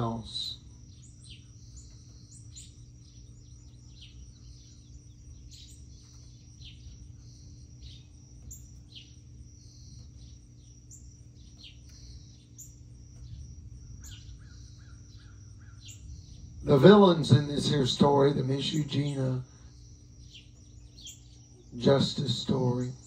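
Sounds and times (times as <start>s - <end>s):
low background rumble: 0.0s - 23.0s
small birds chirping: 0.0s - 23.0s
steady high whine: 0.0s - 23.0s.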